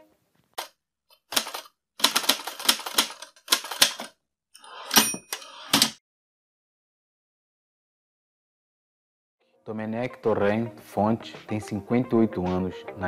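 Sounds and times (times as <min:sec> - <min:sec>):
typewriter keys clacking: 0:01.2 - 0:04.1
typewriter bell ring: 0:04.8 - 0:05.5.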